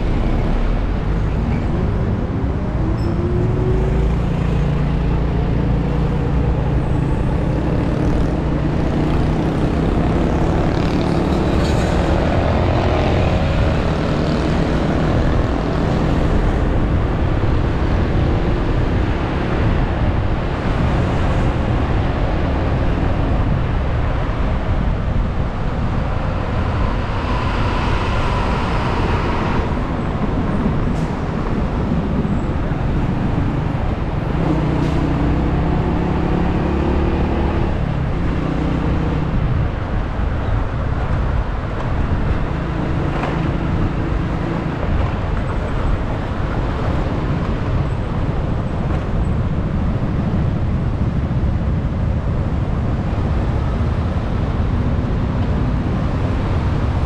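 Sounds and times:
road rumble: 0.0 - 57.0
surrounding vehicle engines: 0.0 - 57.0.

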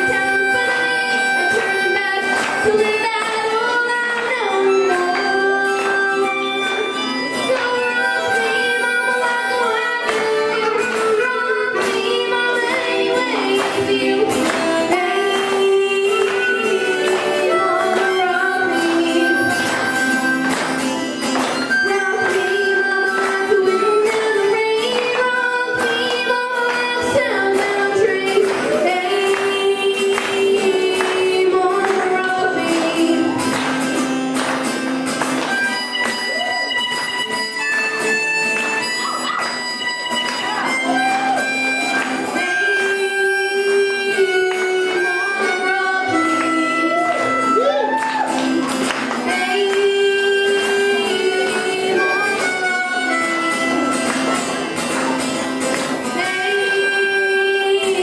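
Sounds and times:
boy singing: 0.0 - 6.6, 7.4 - 20.0, 21.8 - 33.5, 42.3 - 48.0, 49.2 - 54.0, 56.1 - 58.0
harmonica playing: 0.0 - 58.0
strummed acoustic guitar: 0.0 - 58.0.

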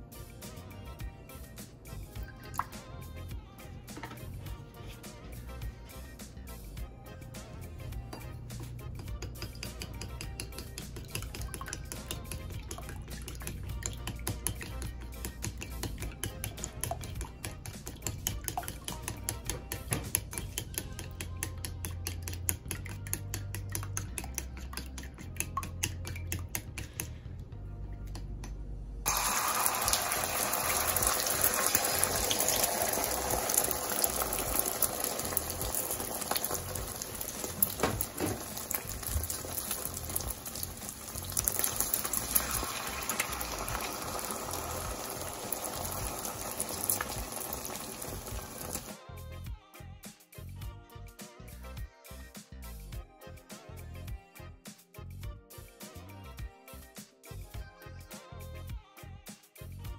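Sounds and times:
eggs sizzling in hot oil: 7.4 - 26.9, 29.1 - 49.0
chopsticks whisking eggs in a bowl: 8.2 - 27.2, 29.2 - 48.9.

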